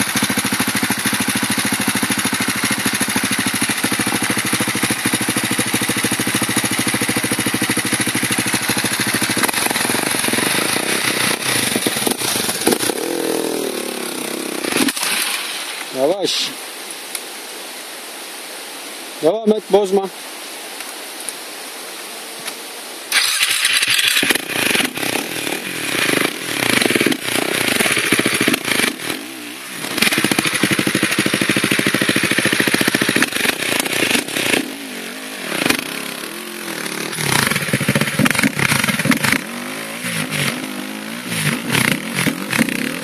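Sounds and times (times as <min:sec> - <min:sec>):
dirt bike engine revving: 0:00.0 - 0:16.1, 0:23.1 - 0:43.0.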